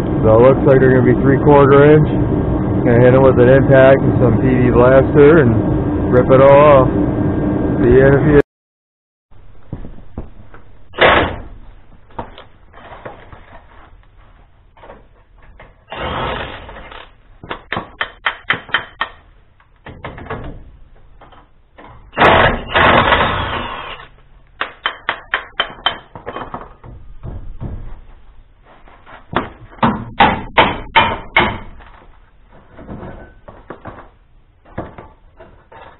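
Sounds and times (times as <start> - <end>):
impact wrench hammering: 17.5 - 19.3, 24.6 - 27.8, 29.3 - 31.8.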